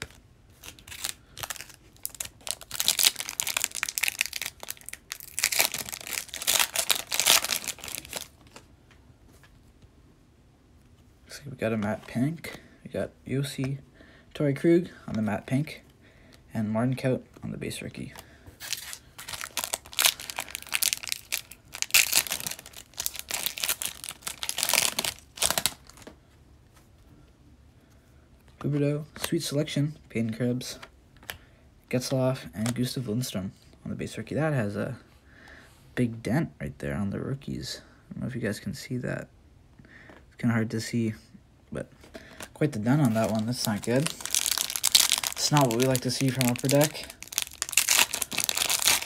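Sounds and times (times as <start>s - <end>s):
foil wrapper crinkling and tearing: 0.0s - 8.6s, 18.6s - 26.1s, 42.8s - 49.0s.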